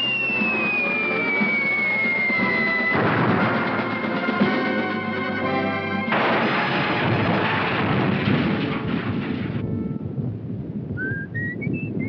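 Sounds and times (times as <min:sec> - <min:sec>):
rising whistled notes: 0:00.0 - 0:04.4, 0:11.0 - 0:12.0
rumbling crackling debris crash: 0:02.8 - 0:03.9, 0:06.1 - 0:09.8.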